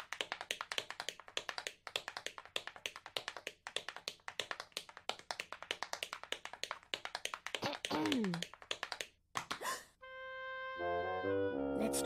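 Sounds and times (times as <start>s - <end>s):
tap shoes clicking on a stage: 0.0s - 9.6s.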